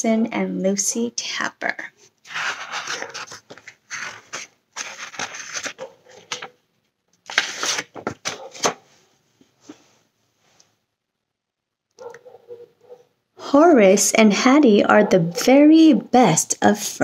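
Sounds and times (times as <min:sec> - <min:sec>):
faint handling of book: 0:02.0 - 0:06.6, 0:07.2 - 0:10.8
book pages rustling: 0:02.1 - 0:06.6, 0:07.2 - 0:09.9.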